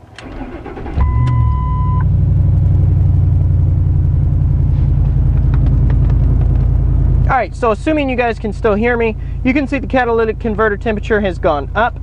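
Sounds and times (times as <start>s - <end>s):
engine starter cranking: 0.0s - 1.7s
truck engine idling: 0.0s - 12.0s
steady beep: 1.0s - 2.1s.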